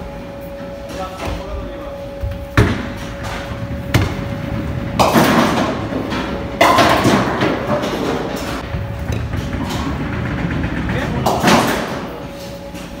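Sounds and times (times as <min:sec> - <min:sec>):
bowling ball rolling: 0:02.3 - 0:12.2
bowling pins crashing: 0:02.5 - 0:12.2.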